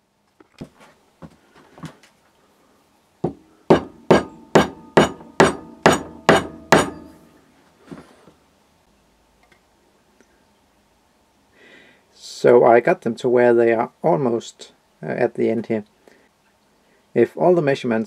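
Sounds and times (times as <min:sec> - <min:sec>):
metal rods struck ringing: 0:03.7 - 0:07.3.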